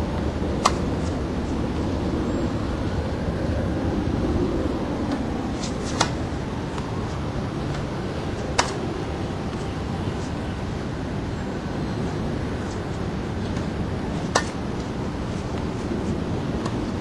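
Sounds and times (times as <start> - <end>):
low rumble: 0.0 - 17.0
tennis ball struck by racket: 0.6 - 1.2, 5.1 - 6.9, 8.4 - 8.9, 13.5 - 14.9.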